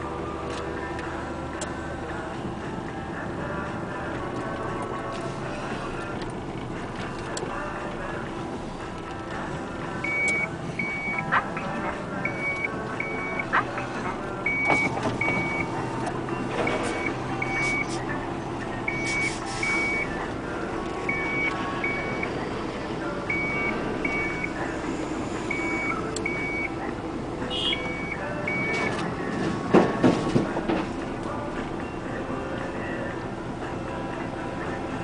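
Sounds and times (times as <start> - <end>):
diesel engines running: 0.0 - 35.0
high warning alarm beeps: 10.0 - 13.6, 14.4 - 15.7, 16.6 - 17.9, 18.9 - 20.1, 21.1 - 22.3, 23.3 - 24.6, 25.5 - 26.8, 27.5 - 29.0.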